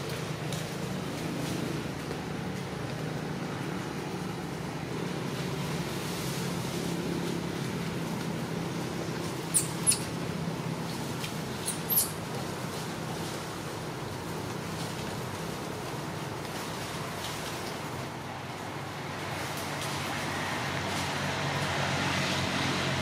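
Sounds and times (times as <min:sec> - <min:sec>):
low background hum: 0:00.0 - 0:20.2
infant monkey squealing: 0:09.5 - 0:10.2, 0:11.6 - 0:12.2.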